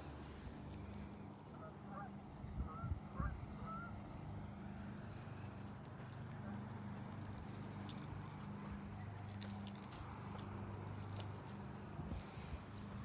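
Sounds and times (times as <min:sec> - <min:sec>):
faint goose honks: 0:01.5 - 0:04.0
waves lapping at shore: 0:03.2 - 0:13.0.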